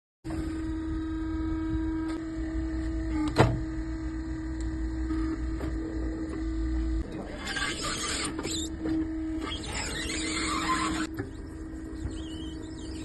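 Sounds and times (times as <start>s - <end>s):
electric motor hum: 0.3s - 13.0s
loud sweeping squeal: 9.4s - 11.1s.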